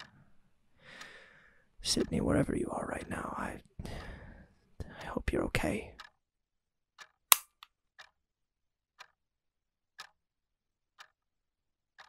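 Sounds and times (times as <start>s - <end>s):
clock ticking softly: 0.0s - 6.2s, 7.0s - 8.2s, 8.9s - 9.3s, 9.9s - 10.3s, 10.9s - 11.3s
loud sharp click: 7.3s - 7.7s.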